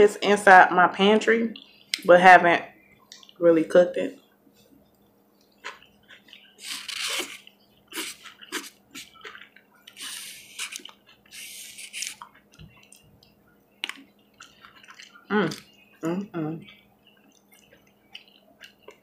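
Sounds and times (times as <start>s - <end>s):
wet chewing: 3.0s - 3.4s, 4.8s - 16.0s, 16.6s - 19.0s
short hissing: 6.6s - 9.2s, 10.0s - 12.2s.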